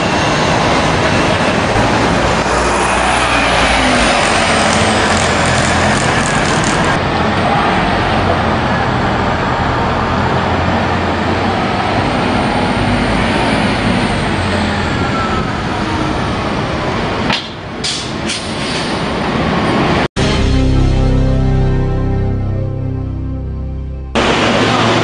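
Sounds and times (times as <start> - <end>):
traffic noise: 0.0 - 20.1, 24.2 - 25.0
bus engine drone: 0.0 - 25.0
air brake hisses: 17.9 - 19.1.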